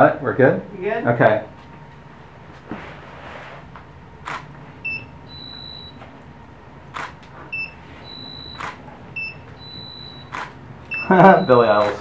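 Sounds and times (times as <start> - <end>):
camera shutter firing: 4.2 - 4.5, 6.9 - 7.2, 8.5 - 8.8, 10.3 - 10.6, 11.7 - 12.0
flash ready beep: 4.8 - 6.0, 7.5 - 12.0
studio strobe chirp: 4.8 - 6.0, 7.5 - 12.0.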